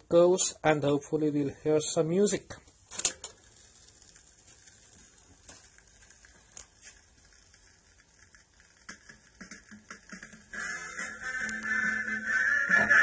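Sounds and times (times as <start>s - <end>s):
record stylus hiss: 2.0s - 13.0s
record clicks and pops: 2.5s - 13.0s.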